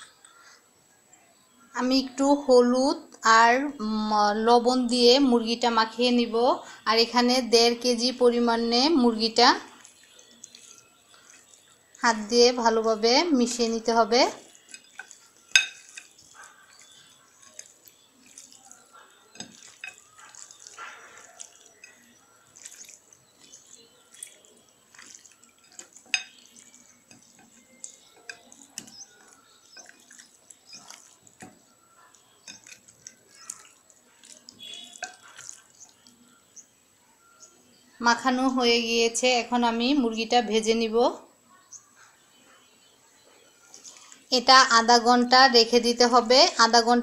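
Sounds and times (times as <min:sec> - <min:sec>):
chicken squelching in bowl: 0:09.5 - 0:12.2, 0:13.5 - 0:36.3.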